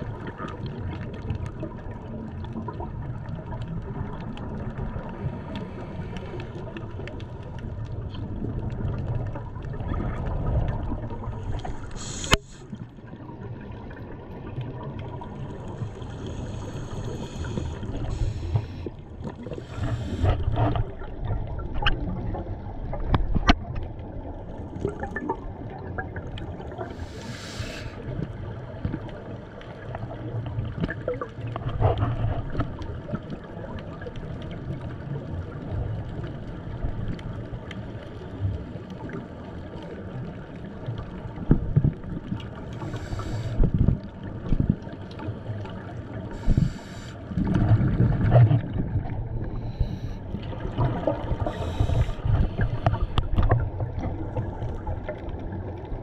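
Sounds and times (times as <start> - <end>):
rumbling moving water: 0.0 - 56.0.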